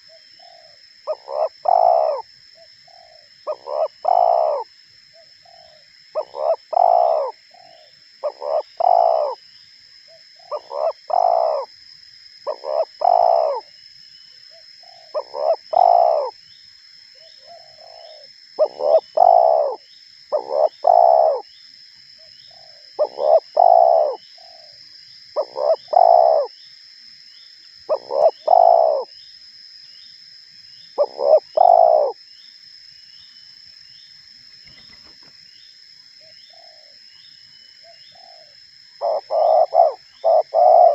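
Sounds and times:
dove cooing: 0.0s - 2.2s, 2.9s - 9.4s, 10.4s - 11.7s, 12.5s - 13.7s, 14.8s - 16.3s, 17.4s - 21.4s, 22.5s - 24.7s, 25.4s - 26.5s, 27.9s - 29.1s, 31.0s - 32.2s, 37.8s - 40.9s.

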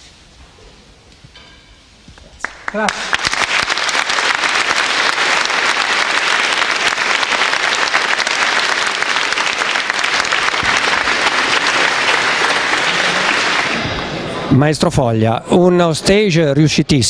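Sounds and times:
crowd applauding: 2.4s - 14.4s.

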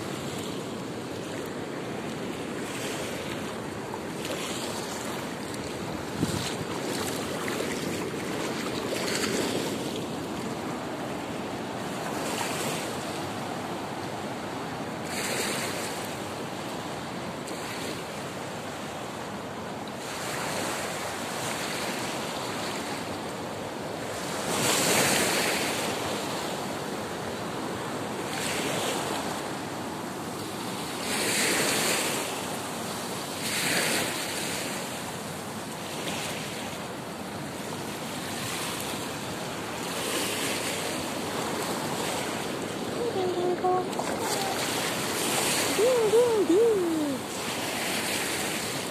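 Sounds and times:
wind on microphone: 5.9s - 7.4s
ocean surf waves rushing: 38.2s - 48.9s.

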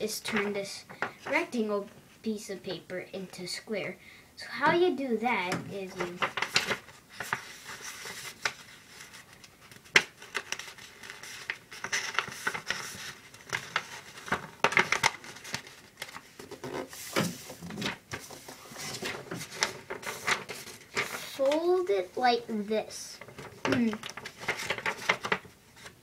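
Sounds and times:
paper rustling and crinkling: 5.8s - 21.9s, 23.1s - 26.0s.

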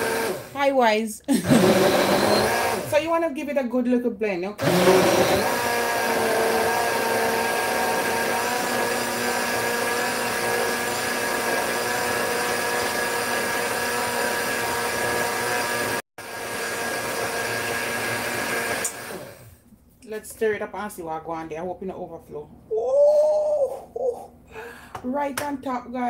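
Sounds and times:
blender running: 0.0s - 0.7s, 1.3s - 3.0s, 4.6s - 19.6s.

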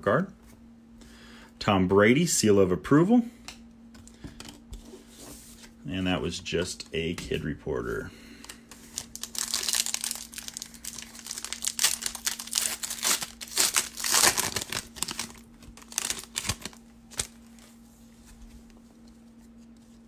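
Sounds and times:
foil wrapper crinkling: 8.4s - 17.8s.

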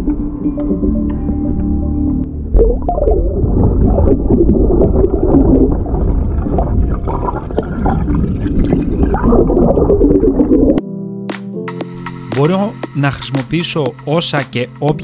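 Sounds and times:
water gurgling underwater: 0.0s - 10.8s.

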